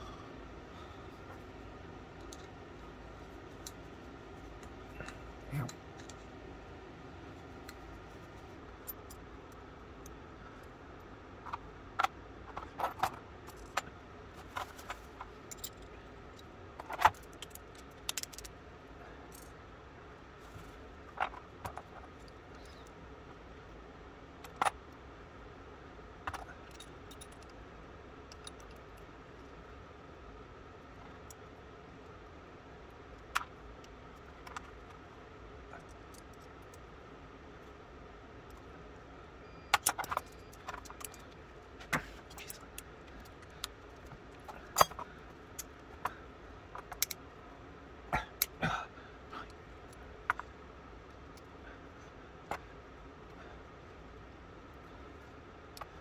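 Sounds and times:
metal lock parts clicking: 16.8 - 18.6, 39.7 - 41.4, 42.3 - 46.1, 46.8 - 47.3.

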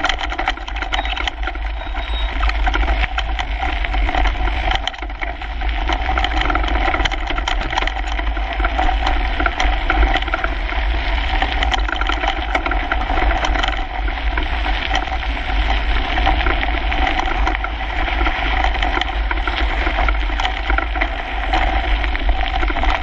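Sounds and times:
bike tyres rattling on gravel: 0.0 - 23.0
wind rumble: 0.0 - 23.0.

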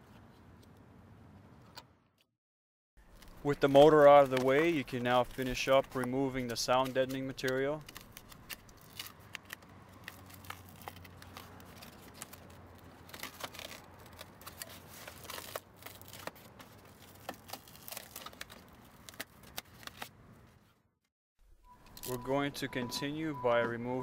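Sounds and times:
foam sheet tearing and crackling: 3.1 - 20.1.

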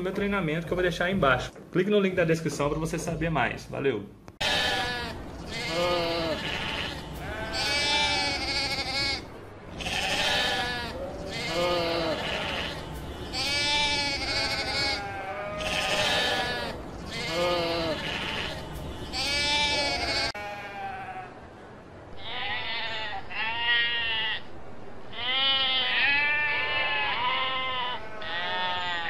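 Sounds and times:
sheep bleating: 4.4 - 21.3, 22.2 - 24.5, 25.1 - 29.0.

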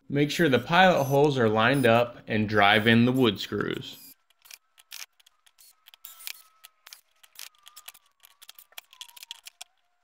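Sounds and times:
drill motor whine: 0.6 - 2.1, 3.9 - 9.6
drill clicks and rattles: 4.0 - 9.8.

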